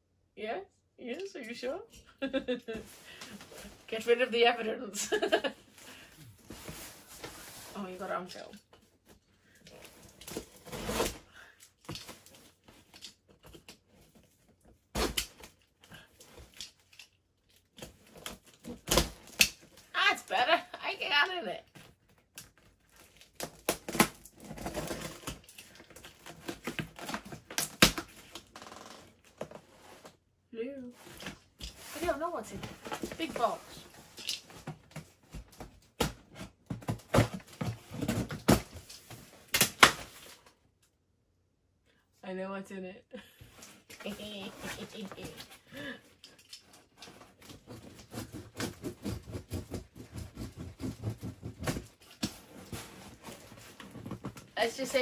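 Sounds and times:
tape and cardboard rustling: 0:02.3 - 0:30.2, 0:30.8 - 0:40.6, 0:43.4 - 0:55.0
packing tape ripping: 0:22.4 - 0:29.0
box cutter cutting cardboard: 0:47.2 - 0:53.6.

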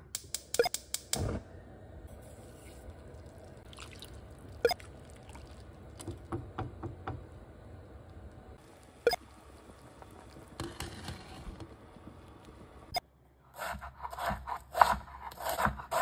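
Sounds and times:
liquid sloshing and dripping: 0:02.8 - 0:06.3.

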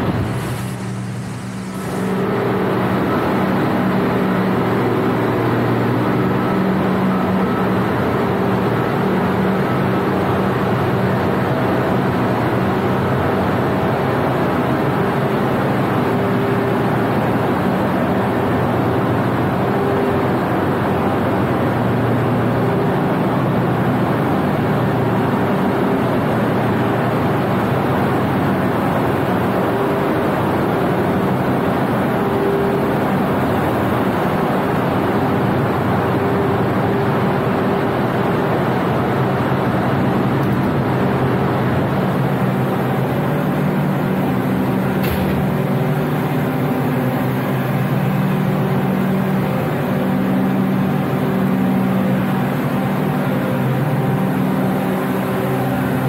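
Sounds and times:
machinery drone: 0:00.0 - 0:56.0.

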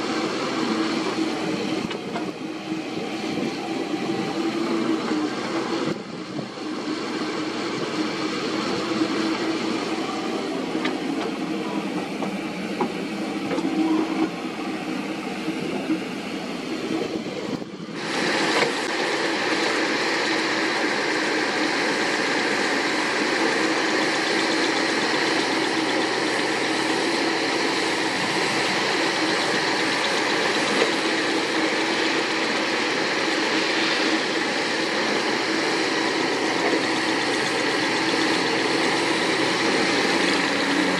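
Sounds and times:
excavator diesel engine running: 0:00.0 - 0:40.9.

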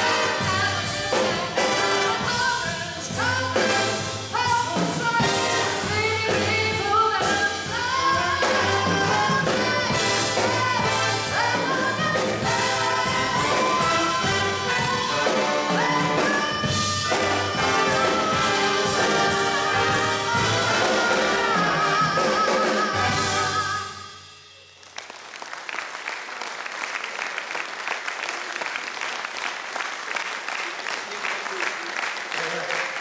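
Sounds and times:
woman singing: 0:00.0 - 0:24.2
jazz big band playing: 0:00.0 - 0:24.7
audience applauding: 0:24.7 - 0:33.0.

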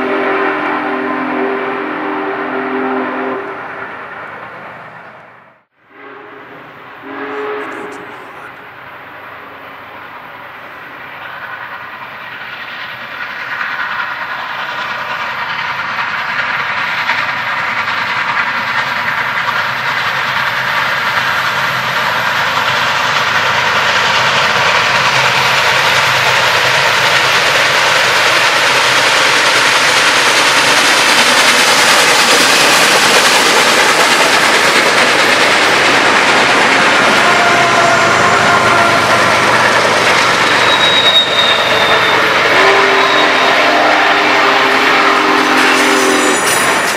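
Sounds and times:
wheels on rails: 0:11.2 - 0:43.5.

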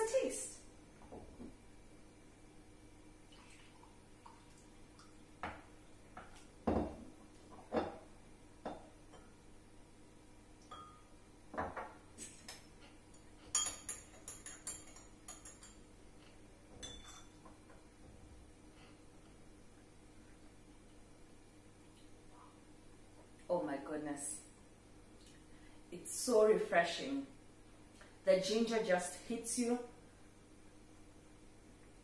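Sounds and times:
glassware knocking on countertop: 0:06.6 - 0:07.0, 0:11.5 - 0:12.0
metal spoon clinking on glass: 0:10.7 - 0:11.1, 0:12.5 - 0:15.8, 0:16.8 - 0:17.4.

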